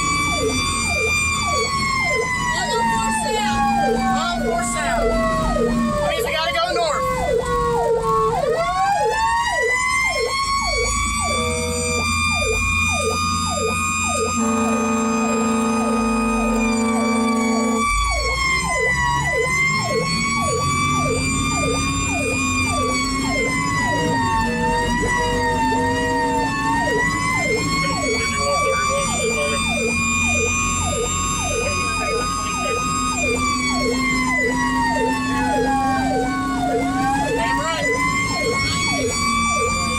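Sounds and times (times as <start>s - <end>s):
siren wailing: 0.0s - 39.9s
siren yelping rapidly: 0.0s - 39.9s
horn blasts: 14.2s - 18.2s.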